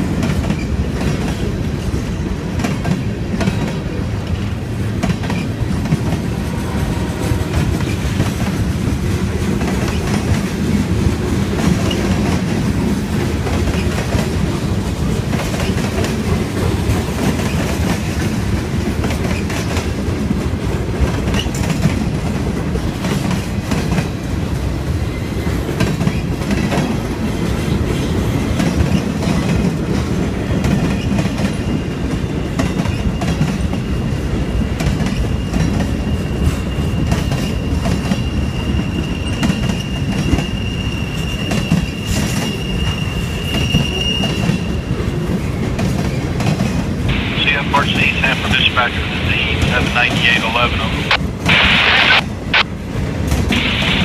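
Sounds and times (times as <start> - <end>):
train wheels rumbling and clattering: 0.0 - 47.2
high wheel squeal: 35.3 - 44.9.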